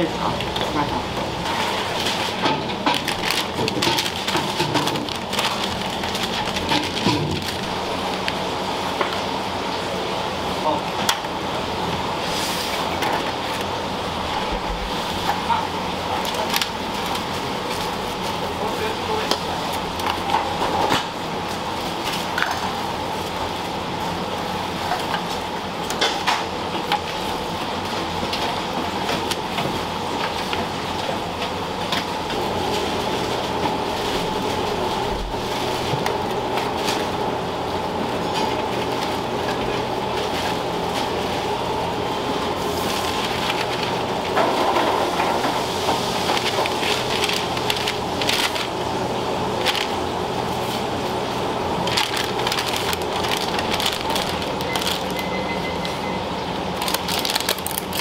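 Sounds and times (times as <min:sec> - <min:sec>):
mechanical hum and hiss: 0:00.0 - 0:58.0
containers and utensils clattering: 0:01.5 - 0:07.7.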